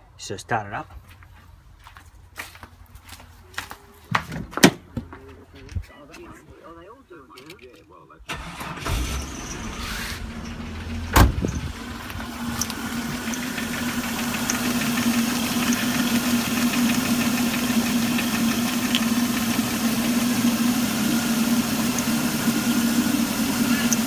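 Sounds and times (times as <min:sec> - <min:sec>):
car engine idling: 0:08.3 - 0:24.0
sharp thump: 0:11.1 - 0:11.6.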